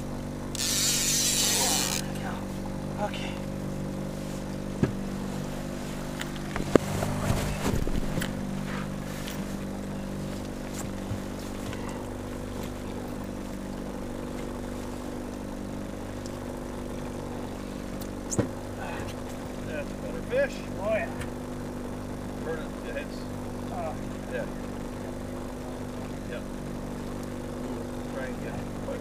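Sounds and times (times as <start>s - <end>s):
outboard motor running: 0.0s - 29.0s
handling noise: 0.5s - 19.7s.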